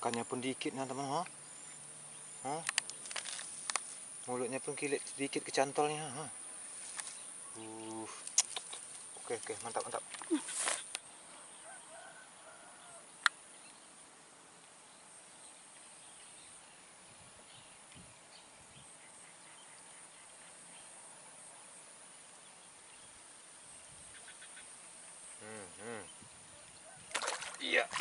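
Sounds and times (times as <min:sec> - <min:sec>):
high-pitched insect buzz: 0:24.1 - 0:26.3.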